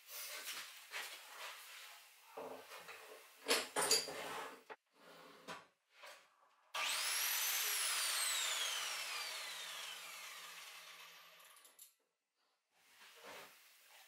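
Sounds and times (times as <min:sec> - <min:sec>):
mitre saw motor whining: 0:06.8 - 0:11.6.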